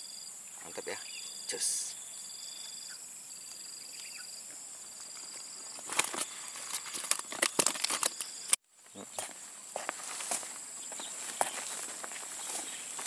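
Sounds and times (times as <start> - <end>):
insects chirping: 0.0 - 13.0
mesh bag crinkling and rustling: 5.2 - 8.3.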